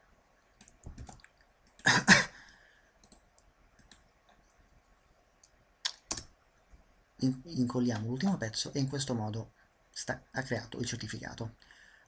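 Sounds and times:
computer mouse clicking: 0:00.5 - 0:01.8, 0:03.0 - 0:04.6, 0:05.4 - 0:06.3.

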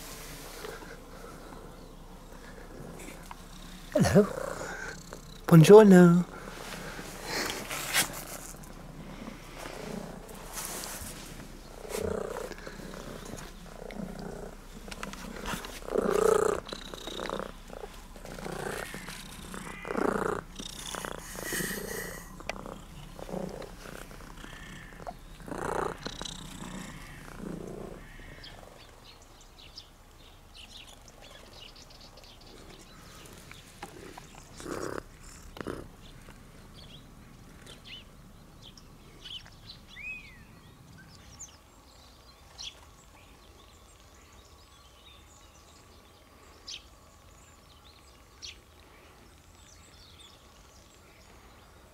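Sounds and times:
cat purring: 0:00.3 - 0:29.0, 0:32.4 - 0:38.3
rustles and bumps: 0:06.4 - 0:26.8.

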